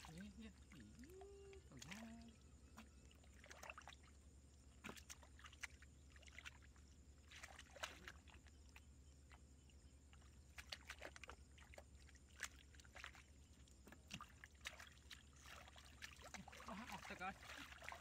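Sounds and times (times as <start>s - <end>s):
hands splashing in muddy water: 0.0s - 9.5s, 10.1s - 18.0s.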